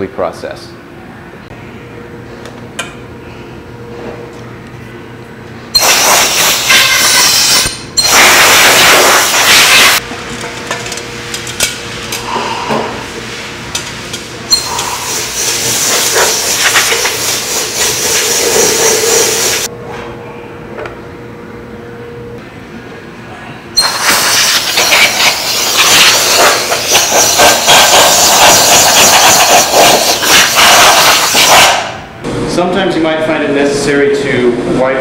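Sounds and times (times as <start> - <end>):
compressed air hissing blasts: 5.8 - 10.0, 14.6 - 19.7, 23.8 - 32.0.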